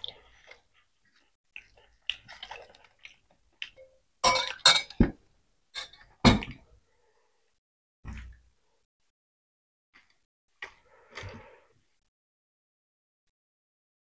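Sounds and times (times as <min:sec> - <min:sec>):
eating rice by hand: 0:00.0 - 0:03.8
spoons clinking on steel bowls: 0:03.8 - 0:05.0.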